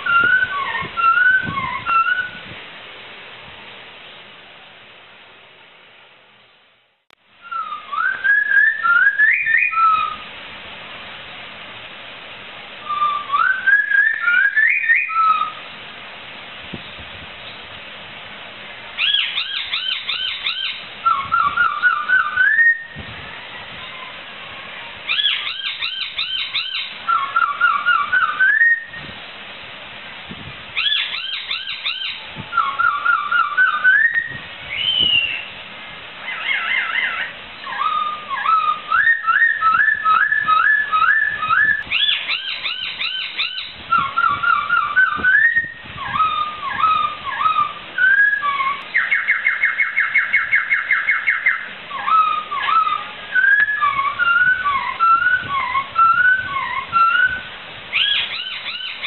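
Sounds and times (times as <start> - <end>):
bird singing whistled phrases: 0.0 - 2.5, 7.4 - 10.2, 12.8 - 15.6, 19.0 - 23.0, 25.1 - 29.0, 30.8 - 35.5, 36.3 - 59.0.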